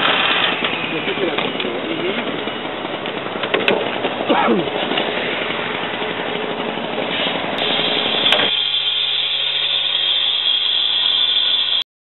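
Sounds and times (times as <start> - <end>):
saw engine droning: 0.0 - 11.8
cut-off saw disc cutting metal: 7.1 - 11.8.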